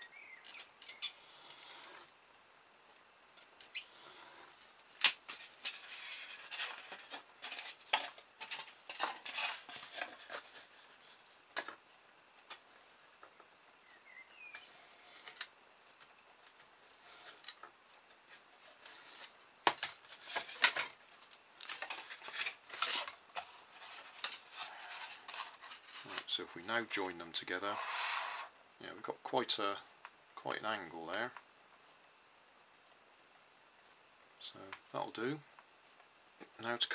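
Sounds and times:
ruler and foam handling: 5.0 - 11.8.

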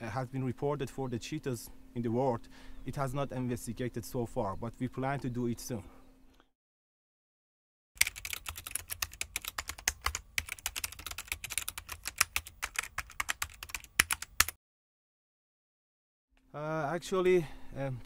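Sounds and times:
keyboard typing clicks: 8.0 - 14.6.

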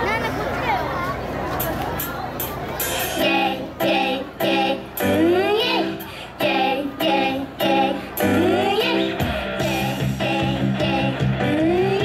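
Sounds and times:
pop music over pa: 3.1 - 12.0
girls singing into microphones: 3.2 - 12.0.

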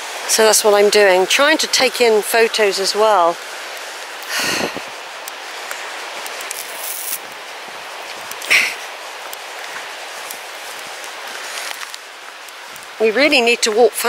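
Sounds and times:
footsteps on dirt path: 5.6 - 13.0.

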